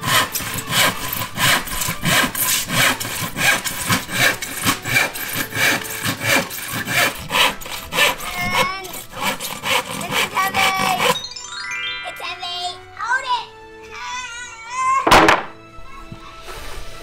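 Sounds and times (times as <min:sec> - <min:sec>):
hand saw cutting wood: 0:00.0 - 0:11.2.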